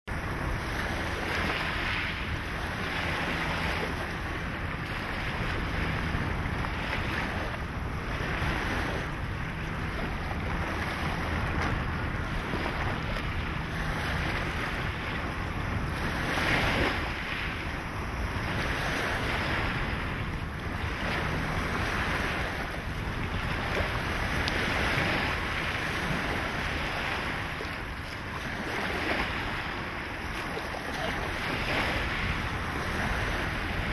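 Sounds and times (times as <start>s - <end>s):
small waves lapping on shore: 0.1s - 33.9s
wind rumbling on microphone: 0.1s - 33.9s.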